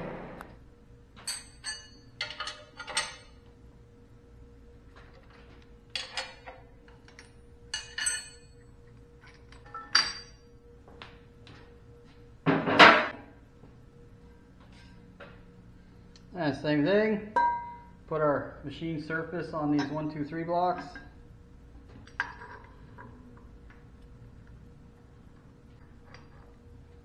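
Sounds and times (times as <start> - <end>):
faint hum: 0.0 - 27.0
metal clamp parts clanking: 1.2 - 3.3, 6.0 - 8.4.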